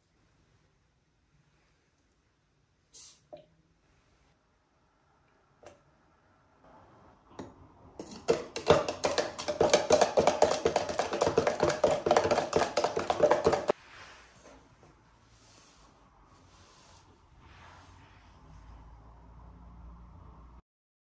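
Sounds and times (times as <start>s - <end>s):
metal spoon stirring in beaker: 8.0s - 13.8s.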